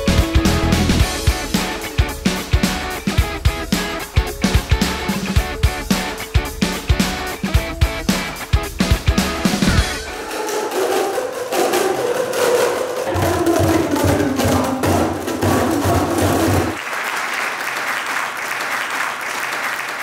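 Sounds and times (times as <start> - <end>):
music with low drum beat: 0.0 - 10.2
crowd applauding: 0.0 - 13.4, 15.7 - 20.0.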